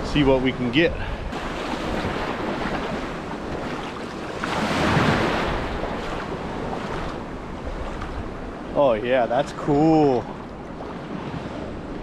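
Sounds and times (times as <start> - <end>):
water washing and lapping: 1.3 - 8.4.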